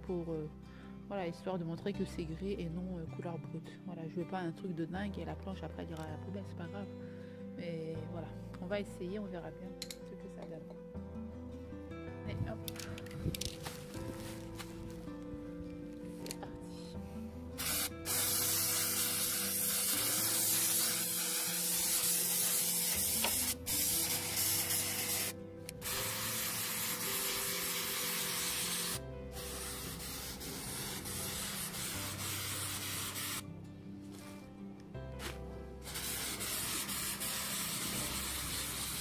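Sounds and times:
spray paint can hissing: 17.6s - 33.4s, 35.2s - 39.0s.

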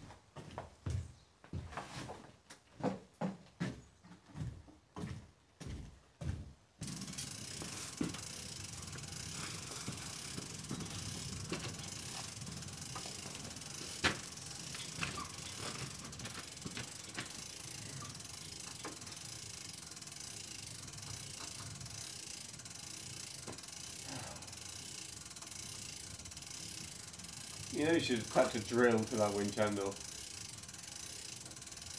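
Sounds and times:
winch ratchet clicking: 6.8s - 31.9s.

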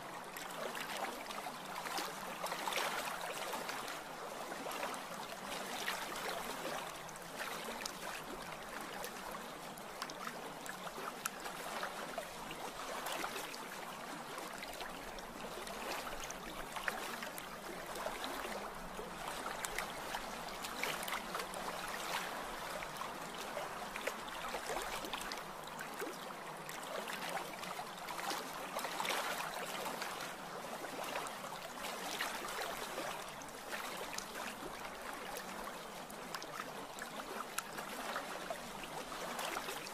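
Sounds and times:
running lapping water: 0.0s - 39.9s.

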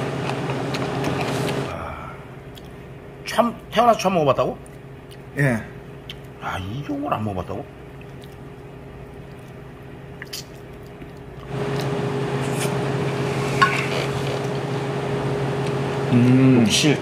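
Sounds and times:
machine hum with hiss: 0.0s - 2.5s, 11.4s - 17.0s.

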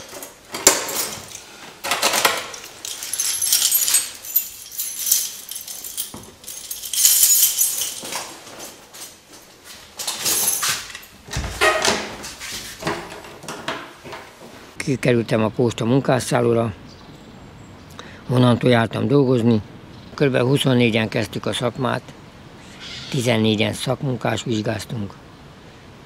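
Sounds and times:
keys and metal parts jangling: 0.0s - 11.9s.

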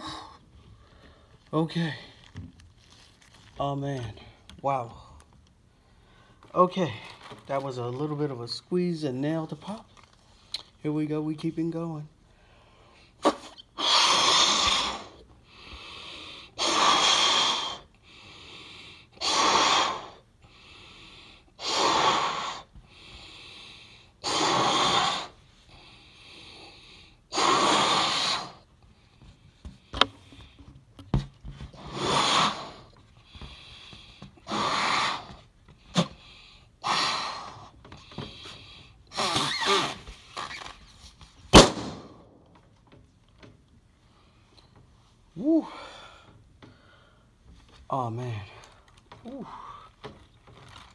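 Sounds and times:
breaths blown into balloon: 13.2s - 15.2s, 16.4s - 17.9s, 19.1s - 20.2s, 21.3s - 22.8s, 24.1s - 25.4s, 26.6s - 28.7s, 31.7s - 33.0s, 34.3s - 36.2s, 36.8s - 40.6s
balloon bursting pop: 41.5s - 42.4s.

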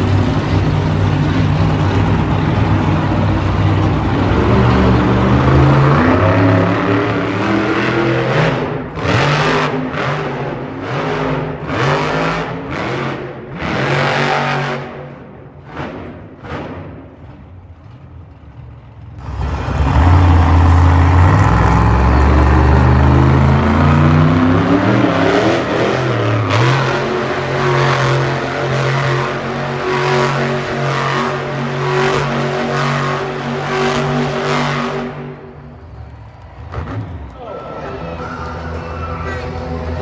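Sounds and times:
monster truck engine revving: 0.0s - 40.0s.

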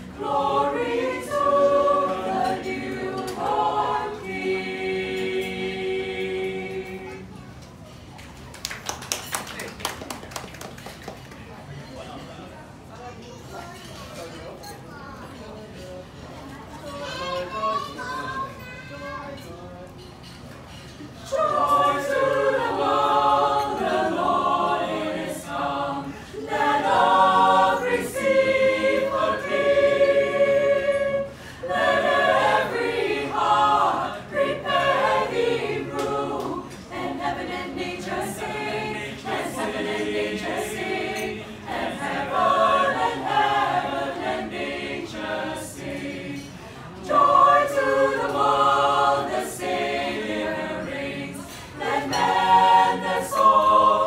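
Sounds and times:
mixed choir singing a cappella: 0.0s - 7.6s, 21.0s - 54.0s.

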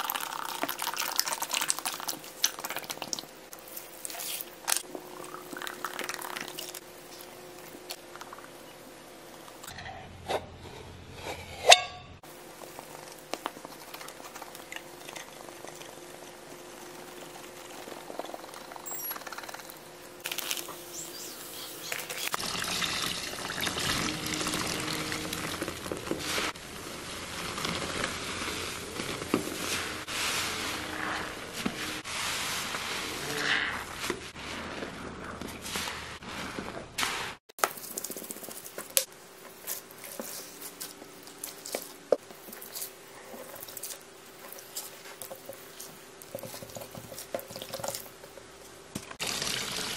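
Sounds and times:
crackling foam: 12.2s - 19.1s, 20.1s - 22.5s, 23.7s - 48.4s
wet sponges squelching: 23.6s - 48.5s.

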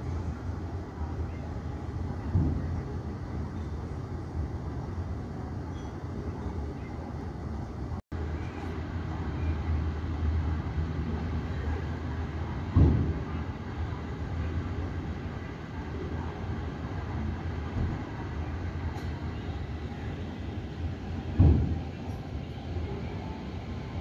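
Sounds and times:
distant aircraft and vehicles rumble: 0.0s - 24.0s
thump: 2.3s - 2.7s, 12.7s - 13.2s, 17.8s - 18.0s, 21.4s - 21.8s.

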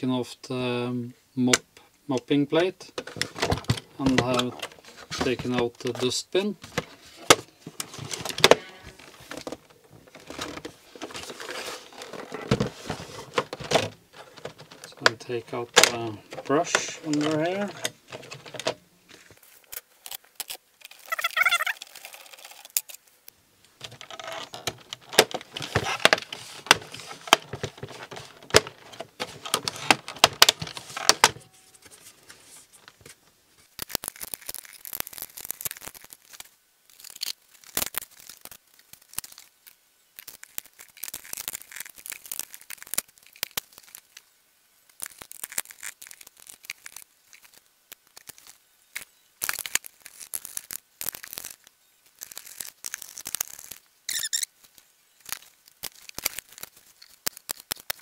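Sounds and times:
plastic clicks and rattles: 3.0s - 18.8s, 23.8s - 31.5s.

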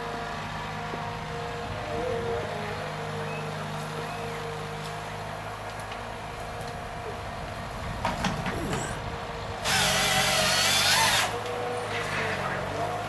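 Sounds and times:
diesel engine running: 0.0s - 13.0s
loud high machine whine: 8.2s - 13.0s.

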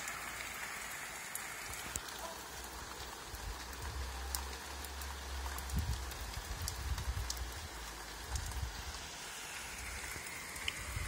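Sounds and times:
heavy rain pouring: 0.0s - 11.0s.

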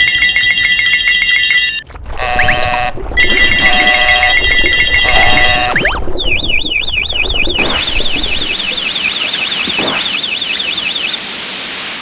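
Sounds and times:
electronic warbling tone: 2.2s - 11.0s
steady hiss: 8.9s - 12.0s.

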